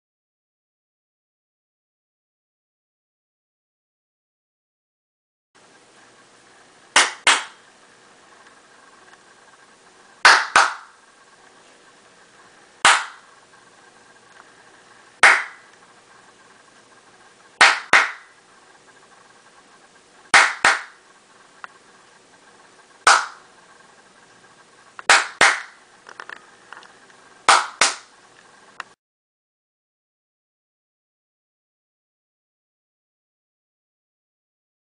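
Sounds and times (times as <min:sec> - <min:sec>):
sharp hand claps: 0:07.0 - 0:07.6, 0:10.2 - 0:10.9, 0:12.8 - 0:13.2, 0:15.2 - 0:15.6, 0:17.6 - 0:18.3, 0:20.3 - 0:21.0, 0:23.1 - 0:23.4, 0:25.1 - 0:25.8, 0:27.5 - 0:28.1.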